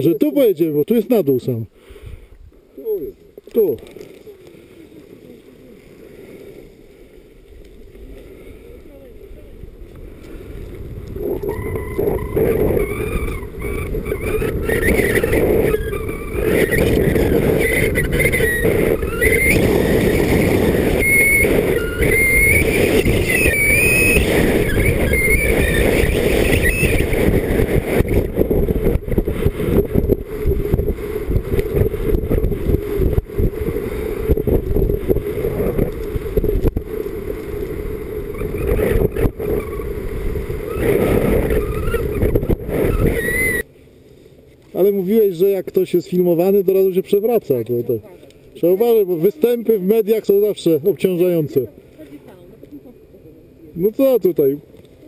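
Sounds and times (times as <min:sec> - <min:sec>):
skis scraping over snow: 0:03.6 - 0:12.8, 0:13.5 - 0:43.2
wind buffeting microphone: 0:05.1 - 0:43.7
wavering high squeal: 0:11.4 - 0:27.2, 0:41.5 - 0:43.7.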